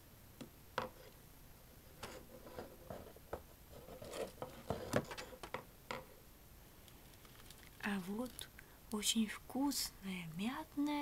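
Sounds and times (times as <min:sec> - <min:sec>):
scratching and rustling handling: 0:02.0 - 0:05.6, 0:06.9 - 0:08.5.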